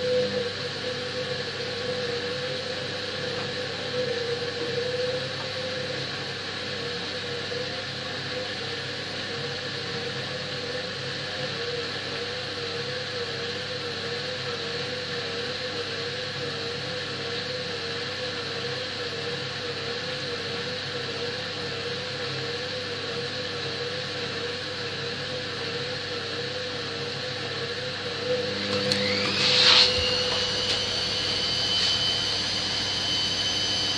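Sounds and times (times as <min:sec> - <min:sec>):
washing machine hum and whine: 0:00.0 - 0:33.9
loud motor starting: 0:28.2 - 0:33.9.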